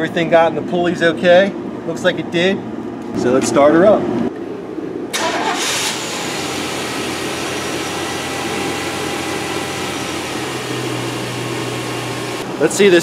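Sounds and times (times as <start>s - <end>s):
engine starting and idling: 5.1s - 11.3s.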